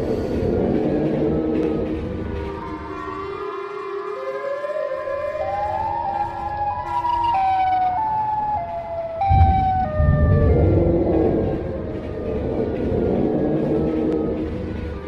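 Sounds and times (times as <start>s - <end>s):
siren wail: 2.2s - 15.0s
deep rumble: 9.2s - 15.0s.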